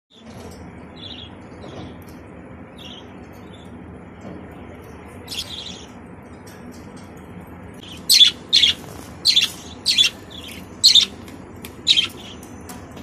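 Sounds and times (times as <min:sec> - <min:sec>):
budgerigars chirping: 0:07.8 - 0:11.2, 0:11.8 - 0:12.4.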